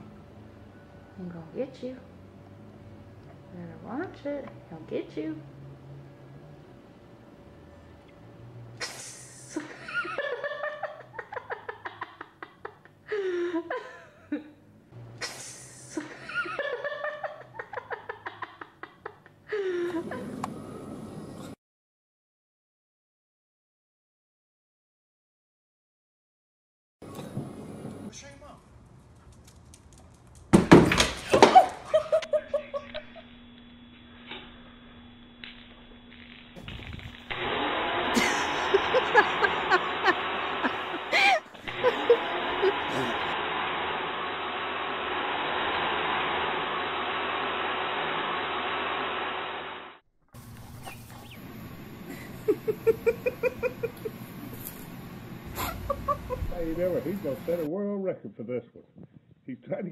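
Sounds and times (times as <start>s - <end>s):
person laughing: 8.8s - 14.6s, 15.2s - 20.4s, 31.3s - 33.3s, 38.0s - 43.4s, 52.1s - 54.3s, 55.5s - 56.8s
faint steady hum: 31.9s - 57.7s.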